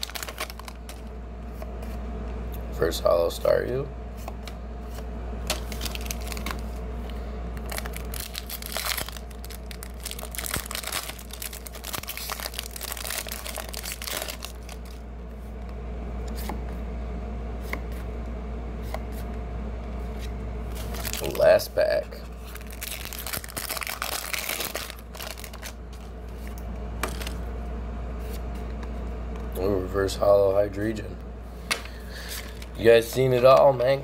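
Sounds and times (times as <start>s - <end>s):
foil wrapper crinkling and tearing: 0.0s - 1.0s, 5.5s - 6.6s, 7.6s - 15.0s, 20.7s - 21.6s, 22.4s - 26.1s, 27.0s - 27.4s
cards being shuffled: 0.0s - 2.0s, 4.2s - 6.8s, 7.6s - 15.0s, 22.4s - 27.4s
steady low hum: 0.0s - 34.0s.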